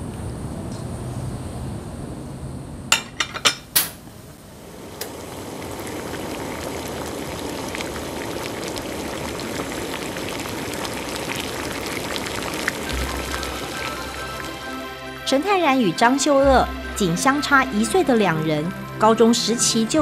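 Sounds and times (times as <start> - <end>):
stew bubbling and sizzling: 3.8 - 20.0.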